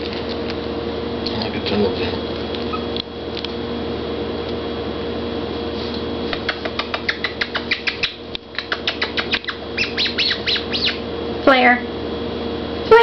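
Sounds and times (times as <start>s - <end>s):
steady background hum: 0.0s - 13.0s
kittens squeaking: 2.6s - 3.0s, 6.4s - 11.0s.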